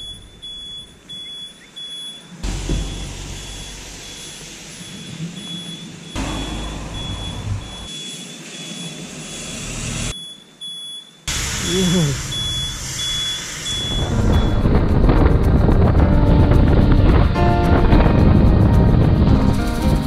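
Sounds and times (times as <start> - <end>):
high beep: 0.0 - 14.7
rain and wind on microphone: 12.6 - 20.0.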